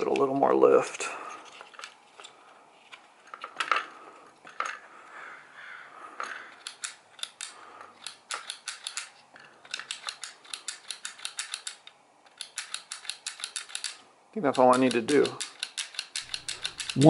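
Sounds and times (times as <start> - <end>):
knocks and rustling of plastic parts: 1.4 - 4.8.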